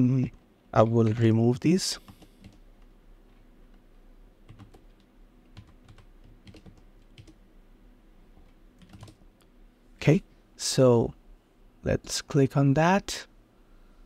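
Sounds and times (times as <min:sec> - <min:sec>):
keyboard keystrokes clicking: 0:04.5 - 0:07.4, 0:08.8 - 0:09.2.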